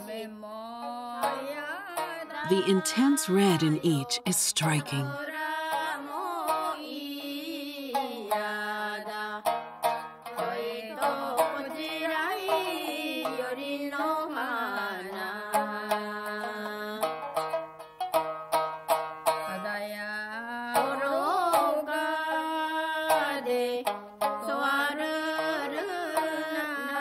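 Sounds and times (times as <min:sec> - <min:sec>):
person singing folk melody: 0:00.8 - 0:05.4, 0:19.4 - 0:27.0
plucked shamisen: 0:05.4 - 0:27.0.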